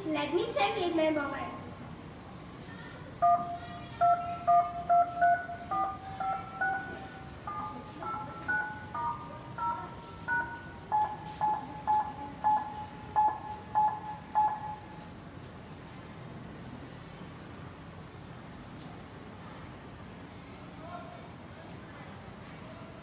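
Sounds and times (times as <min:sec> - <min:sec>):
phone keypad dialling beeps: 0:03.2 - 0:14.9.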